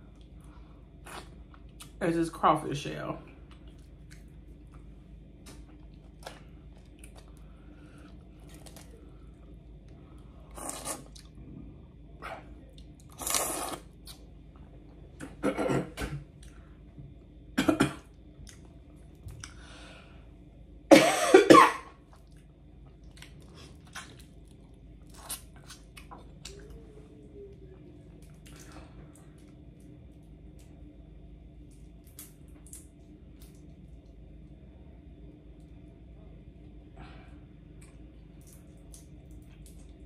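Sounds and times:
sucking and chewing: 0:00.1 - 0:02.0, 0:03.4 - 0:11.6, 0:12.2 - 0:15.3, 0:22.0 - 0:30.8
short cough: 0:15.4 - 0:16.2, 0:20.9 - 0:21.9.

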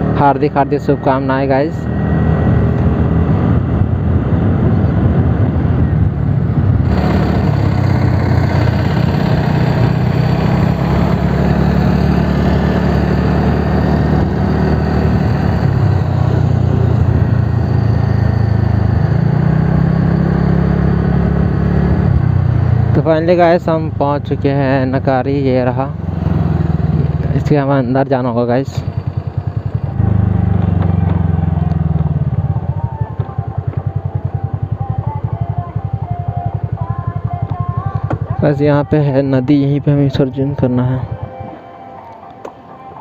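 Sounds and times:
scooter engine running: 0:00.0 - 0:41.5
wind rushing over microphone: 0:01.8 - 0:09.2.

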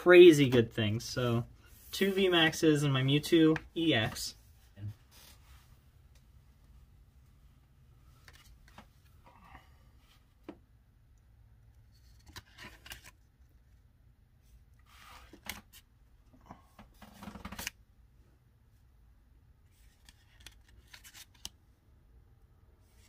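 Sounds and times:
trading cards and wrappers rustling: 0:11.8 - 0:13.6, 0:19.7 - 0:21.6.

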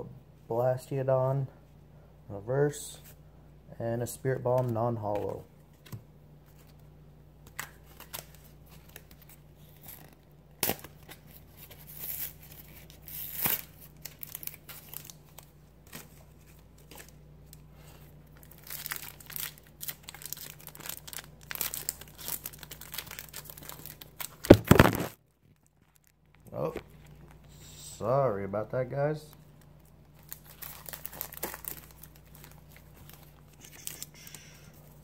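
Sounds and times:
foil wrapper crinkling and tearing: 0:07.6 - 0:17.6, 0:18.3 - 0:27.4, 0:29.8 - 0:34.8
camera falling with clatter: 0:24.4 - 0:25.2.

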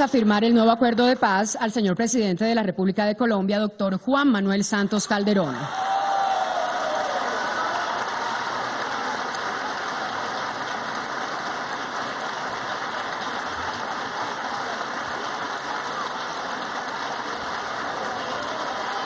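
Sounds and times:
audience applauding: 0:05.1 - 0:19.0.

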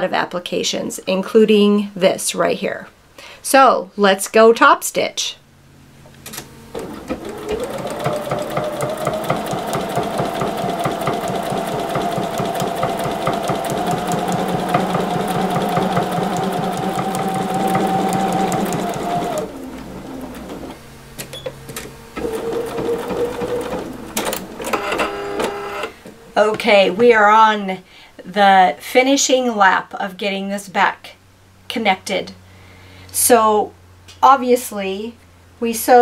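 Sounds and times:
sewing machine stitching: 0:06.8 - 0:20.8, 0:22.2 - 0:25.9.

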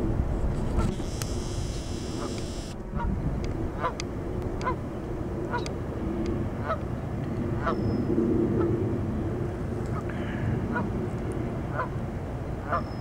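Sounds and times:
geese honking: 0:11.7 - 0:11.9, 0:12.6 - 0:12.9.

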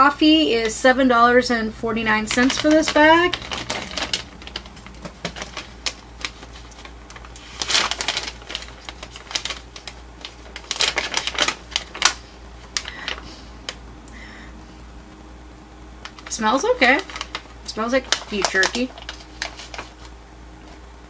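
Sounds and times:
plastic bag crinkling: 0:02.1 - 0:13.5, 0:16.0 - 0:20.1.

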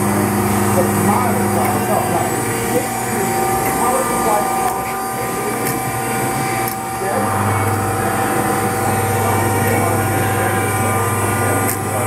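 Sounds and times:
deep loud hum: 0:00.0 - 0:12.0
grinder hum with high whine: 0:00.0 - 0:12.0.

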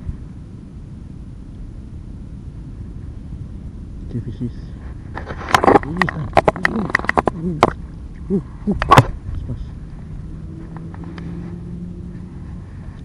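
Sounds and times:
steady low hum: 0:00.0 - 0:13.0
wind buffeting microphone: 0:00.0 - 0:13.0
person humming: 0:05.8 - 0:09.1.

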